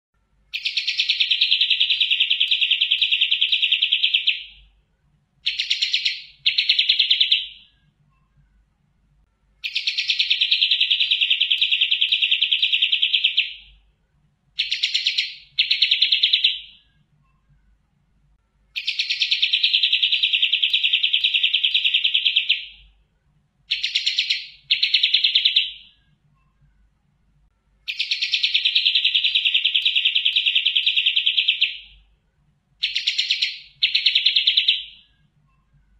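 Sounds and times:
bulbul singing trills: 0.5s - 4.7s, 5.4s - 8.4s, 9.6s - 13.9s, 14.6s - 17.5s, 18.7s - 23.0s, 23.7s - 26.6s, 27.9s - 32.1s, 32.8s - 35.7s.

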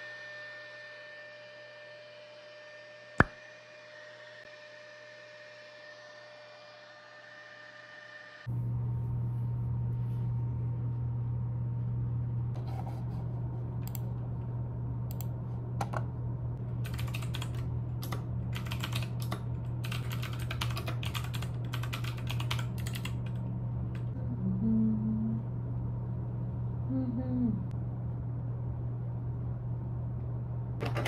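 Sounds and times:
steady low hum: 8.4s - 31.0s.

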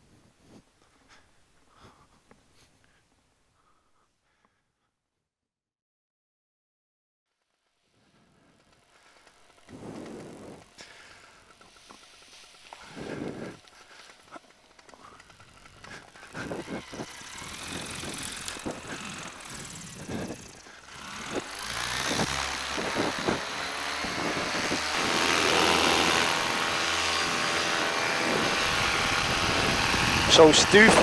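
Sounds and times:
paramotor engine running: 7.4s - 31.0s.

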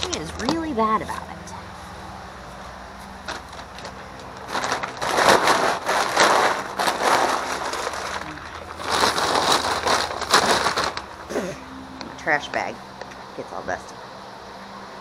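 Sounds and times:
plastic bag rustling: 3.0s - 11.4s.

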